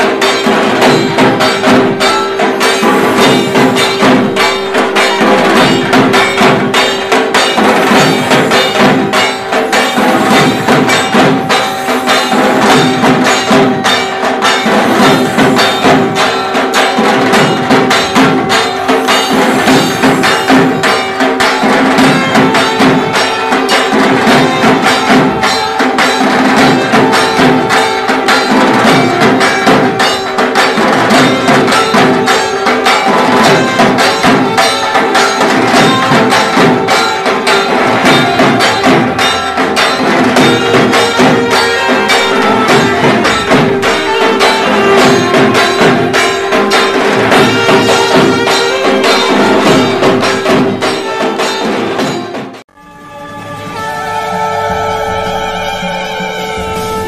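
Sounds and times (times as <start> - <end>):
fast folk percussion: 0.0 - 57.0
steady held drone note: 52.7 - 57.0.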